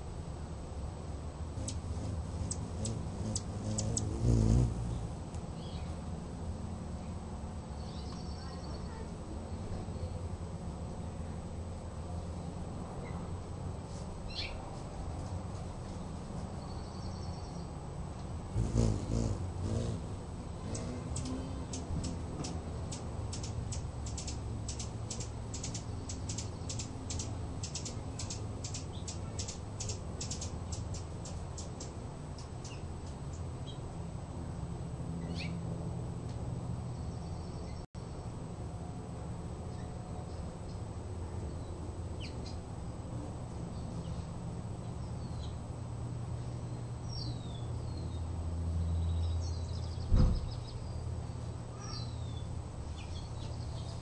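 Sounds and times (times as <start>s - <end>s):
steady low hum: 0.0s - 50.0s
hummingbird wings whirring: 1.5s - 5.8s, 18.5s - 33.2s
hummingbird chip notes: 1.6s - 5.9s, 18.6s - 31.8s.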